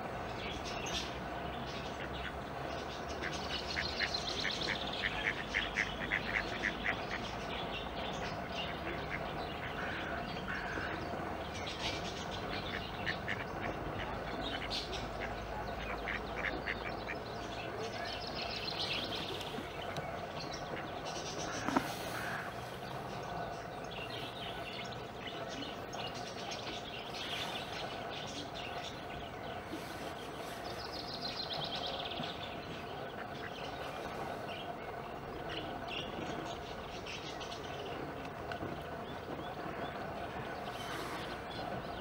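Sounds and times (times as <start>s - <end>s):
steady low hum: 0.0s - 42.0s
waterbirds calling: 0.0s - 42.0s.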